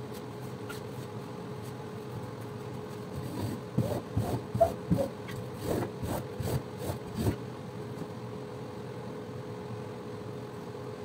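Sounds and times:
steady mechanical hum: 0.0s - 11.0s
squeegee scraping rug: 3.2s - 7.4s.

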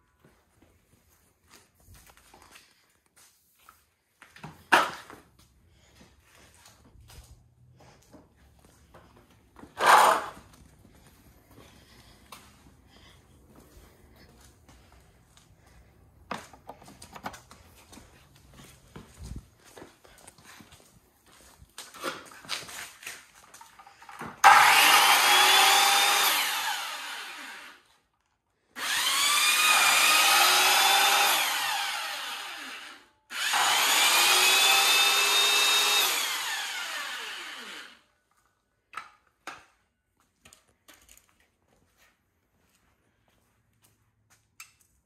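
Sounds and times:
power saws whining: 23.5s - 28.0s, 28.8s - 38.1s.

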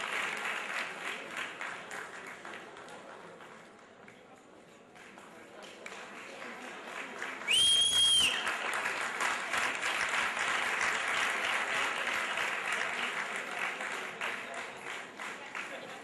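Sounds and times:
audience applauding: 0.0s - 3.4s, 5.0s - 16.0s.

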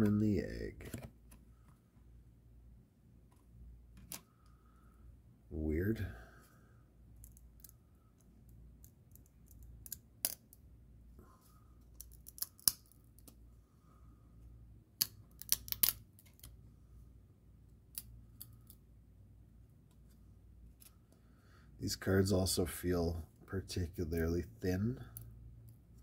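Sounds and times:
cards snapping apart: 12.0s - 13.4s, 15.0s - 16.5s.

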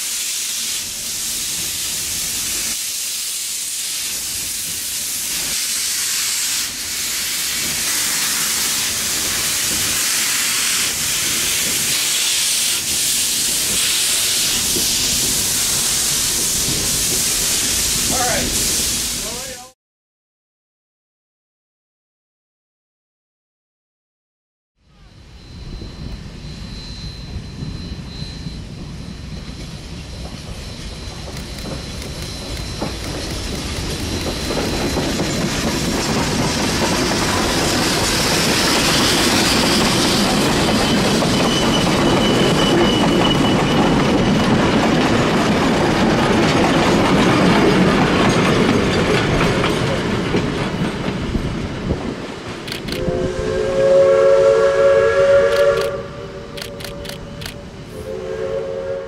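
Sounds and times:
steam locomotive passing: 0.0s - 19.7s, 24.9s - 59.0s
steam whistle blowing: 53.0s - 59.0s.

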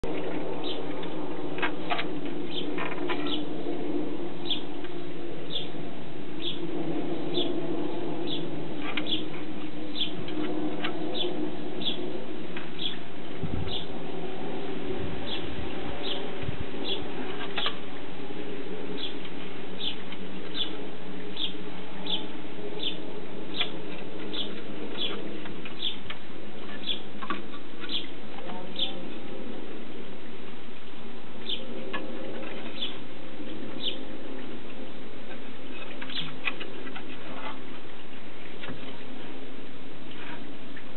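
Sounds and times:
low background hum: 0.0s - 40.9s
bird chirping: 4.4s - 4.7s, 8.2s - 9.3s, 19.8s - 20.8s, 21.4s - 26.0s, 26.7s - 27.1s, 27.8s - 29.0s, 31.4s - 31.7s, 32.7s - 33.0s, 33.8s - 34.0s, 36.0s - 36.4s.

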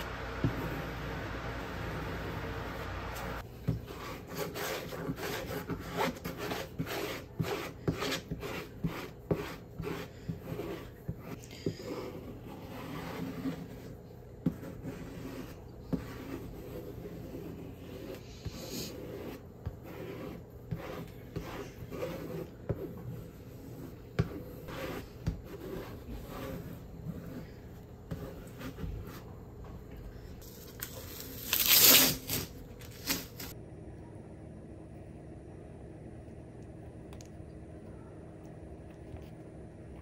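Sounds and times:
masking tape peeled off paper: 30.5s - 33.5s.

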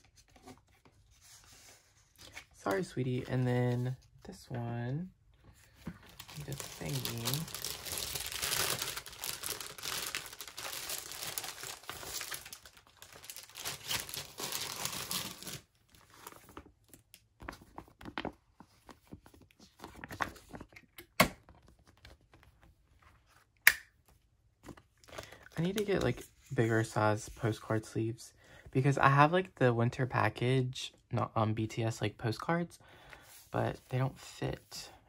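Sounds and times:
plastic sleeve pages crinkling: 5.7s - 20.8s.

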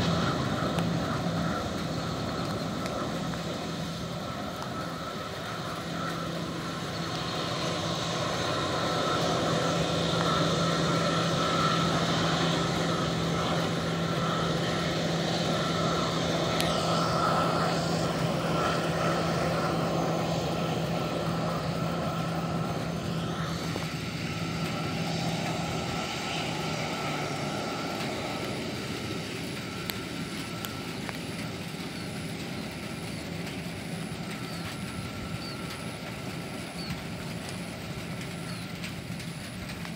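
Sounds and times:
jet engines rushing hum: 0.0s - 39.9s
low engine drone: 0.0s - 39.9s.

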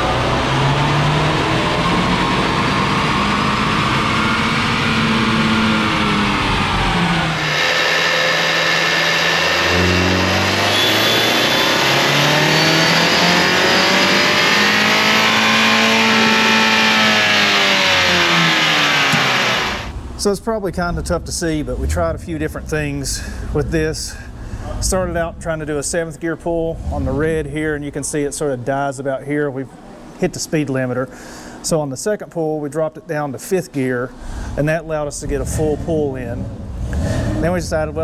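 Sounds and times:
car engine revving on a dyno: 0.0s - 20.3s, 35.0s - 38.0s.

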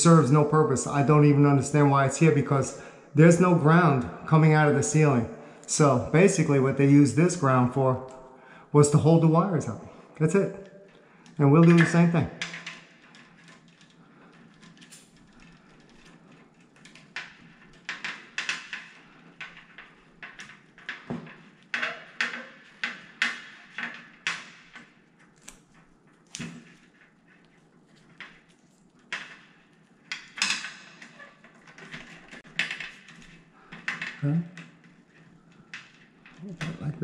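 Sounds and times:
electrical tape crackling and rustling: 9.0s - 37.0s.

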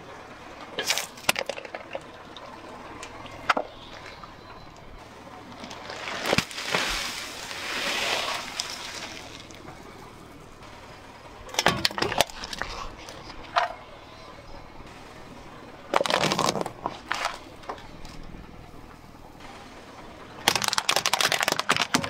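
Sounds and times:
car tyre crushing objects: 0.6s - 22.0s
bag bursting: 5.9s - 9.6s, 20.5s - 22.0s
plastic beads pouring out: 6.0s - 9.5s, 20.5s - 22.0s
can being crushed: 15.9s - 17.4s, 20.5s - 22.0s.

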